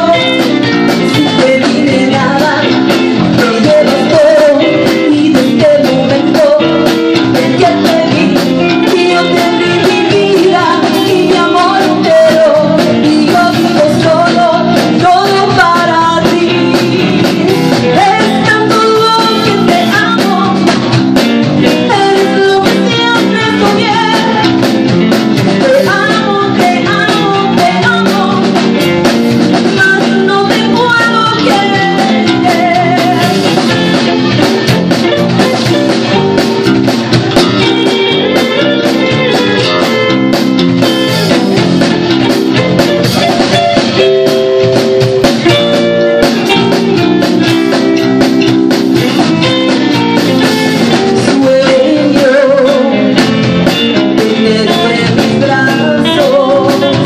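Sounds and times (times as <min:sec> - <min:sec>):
woman singing: 0:00.0 - 0:34.5, 0:37.3 - 0:40.1, 0:49.0 - 0:57.0
drum kit: 0:00.0 - 0:57.0
electric guitar: 0:00.0 - 0:57.0.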